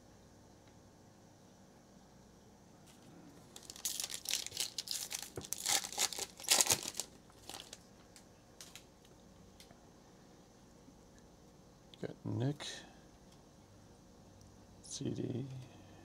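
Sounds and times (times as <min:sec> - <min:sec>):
foil wrapper crinkling and tearing: 0:03.4 - 0:08.9.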